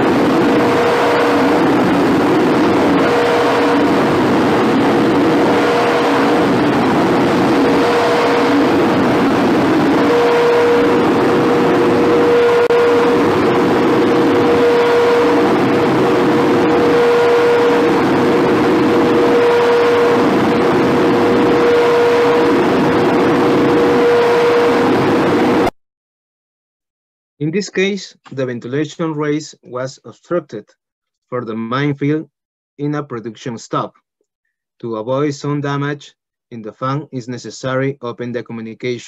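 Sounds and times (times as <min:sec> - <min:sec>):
rush of air: 0:00.0 - 0:25.7
ventilation fan droning: 0:00.0 - 0:25.7.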